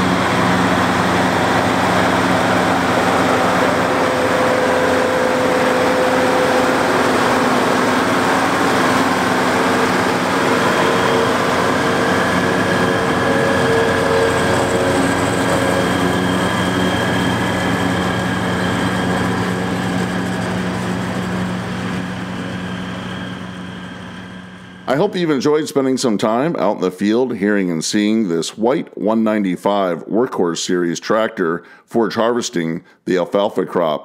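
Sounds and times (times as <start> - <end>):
tractor diesel engine under load: 0.0 - 25.1
constant mechanical whine: 0.0 - 26.6.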